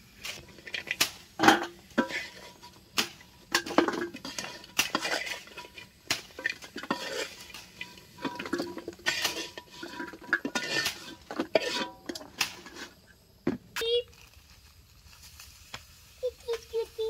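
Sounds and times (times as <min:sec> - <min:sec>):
metal spatula scraping a wok: 0:00.0 - 0:13.2.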